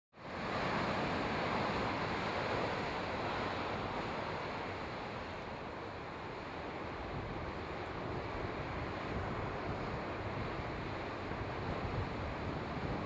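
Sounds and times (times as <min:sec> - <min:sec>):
ocean surf washing on shore: 0:00.2 - 0:13.0
wind on microphone: 0:07.0 - 0:13.0.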